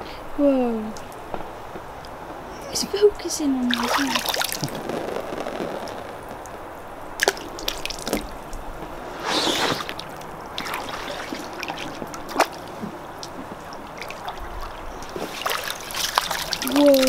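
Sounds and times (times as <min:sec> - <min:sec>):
water splashing and dripping: 0:03.6 - 0:05.0, 0:07.2 - 0:08.8, 0:09.7 - 0:17.0.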